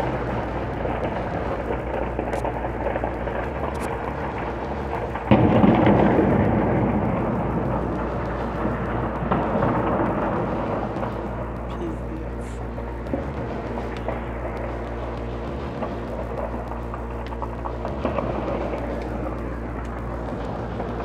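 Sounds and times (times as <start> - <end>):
distant explosion boom: 0.0 - 11.7
low continuous rumble: 0.0 - 21.0.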